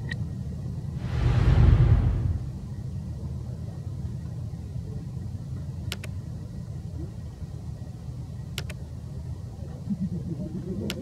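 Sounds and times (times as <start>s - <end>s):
steady low rumble: 0.8s - 4.2s
double mouse clicks: 5.9s - 6.1s, 8.6s - 8.8s.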